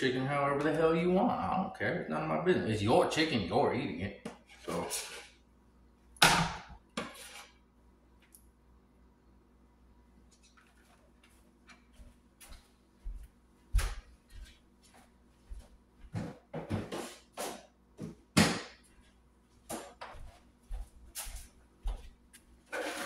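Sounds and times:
kitchen items knocking and clattering: 22.7s - 23.0s.

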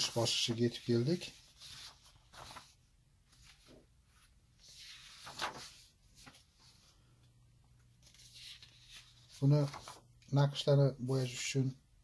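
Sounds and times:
paper sheets shuffled by hand: 0.0s - 7.0s, 8.0s - 10.1s.

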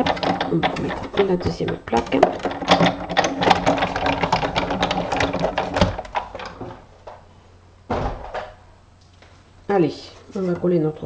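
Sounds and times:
die-cutting machine clattering: 0.0s - 6.8s.

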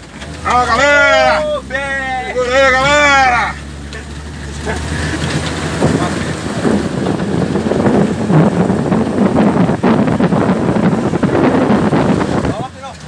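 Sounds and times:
engine pulling under load: 0.0s - 13.0s
vehicle knocks and rattles: 2.8s - 13.0s
wind noise on microphone: 5.1s - 13.0s.

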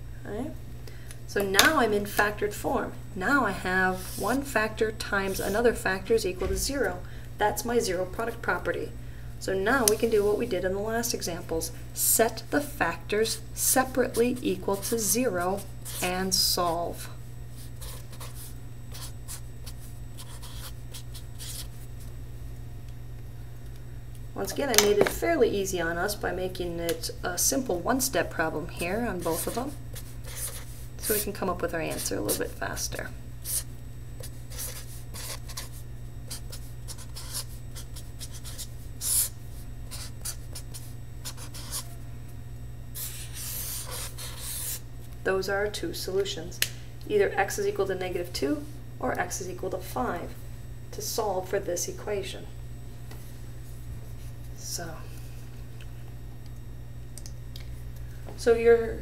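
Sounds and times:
steady low hum: 0.0s - 59.0s
marker writing on paper: 17.6s - 21.7s, 29.2s - 31.2s, 33.4s - 39.3s, 39.9s - 42.0s, 43.0s - 44.8s
felt-tip marker writing on paper: 29.3s - 31.2s, 34.5s - 39.3s.

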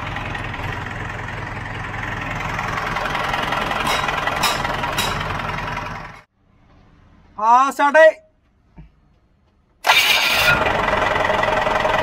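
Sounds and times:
diesel engine idling: 0.0s - 6.3s, 9.8s - 12.0s.

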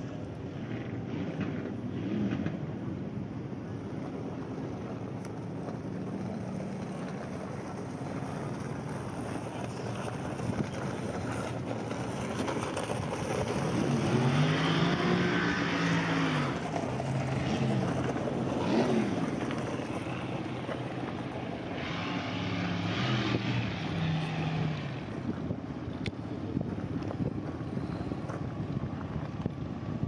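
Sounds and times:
wind noise on microphone: 0.7s - 20.6s, 23.0s - 30.0s
car engine revving: 13.6s - 25.3s.

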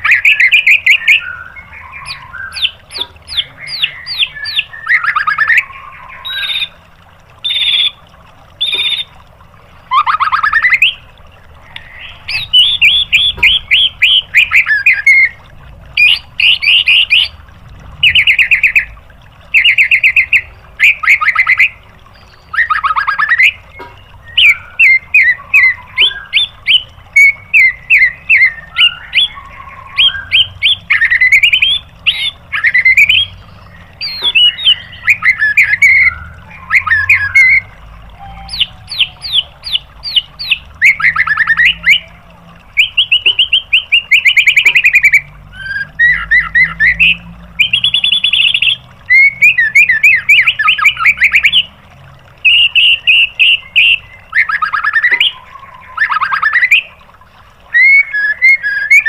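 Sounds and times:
songbird singing fast song: 0.0s - 6.8s, 11.7s - 15.4s, 16.0s - 17.4s, 19.5s - 42.1s, 42.8s - 51.7s.

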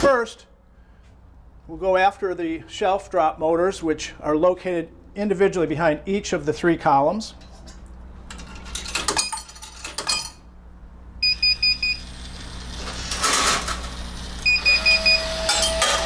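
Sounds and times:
vending machine short high beeps: 11.2s - 12.1s, 14.4s - 15.8s.

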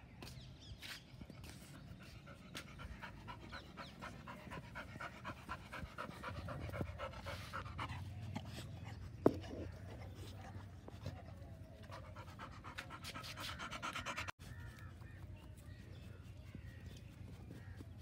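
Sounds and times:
dog panting: 1.5s - 14.4s.

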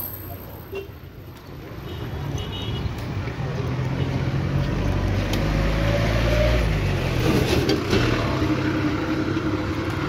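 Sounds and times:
road noise: 0.0s - 10.0s
vehicle engine hum: 3.0s - 10.0s.

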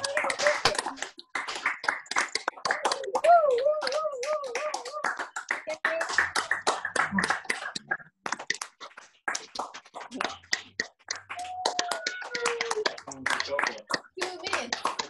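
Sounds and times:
people clapping: 0.0s - 15.0s.

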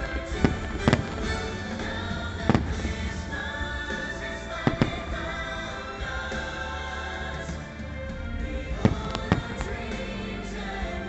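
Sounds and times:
firework shells bursting: 0.0s - 6.6s
show music: 0.0s - 11.0s.

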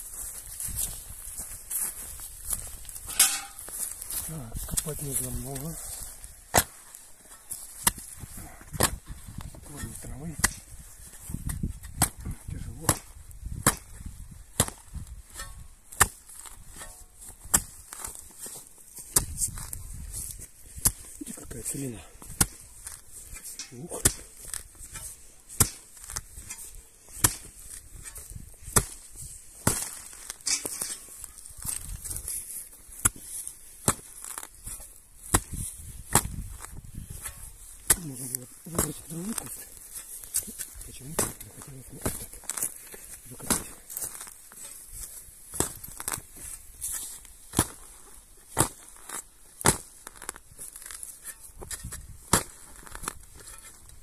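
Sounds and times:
roots crackling: 0.0s - 54.0s
spade chopping into soil: 6.5s - 6.9s, 7.5s - 32.4s, 33.0s - 47.9s, 48.5s - 53.8s.

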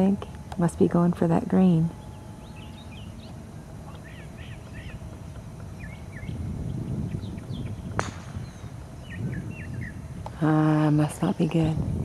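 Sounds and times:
birds chirping: 0.0s - 11.8s
golf club striking ball: 7.9s - 8.7s.

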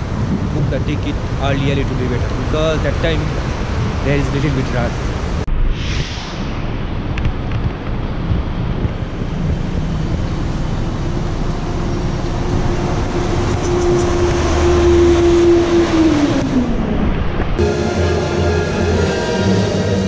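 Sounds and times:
passing train rumble: 0.0s - 20.0s
humming tone: 5.5s - 20.0s.

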